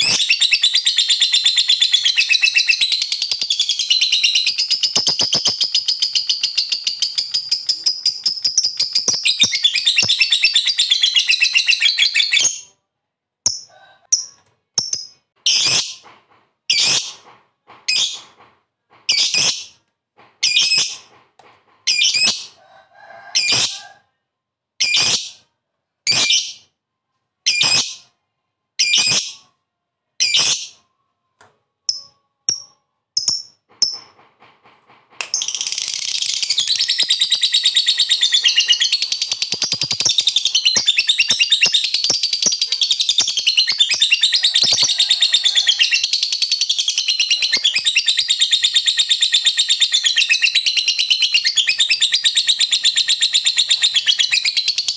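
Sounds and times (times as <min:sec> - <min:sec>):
lovebird calling and chattering: 0:00.0 - 0:12.6, 0:35.4 - 0:54.9.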